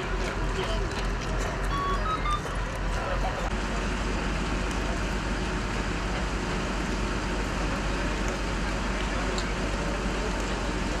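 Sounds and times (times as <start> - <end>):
outdoor street noise rumble: 0.0 - 11.0.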